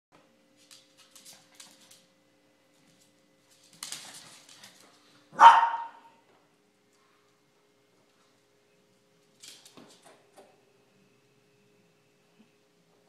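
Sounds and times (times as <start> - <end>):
paws clicking on hardwood floor: 0.6 - 5.2
small dog barking: 5.3 - 6.2.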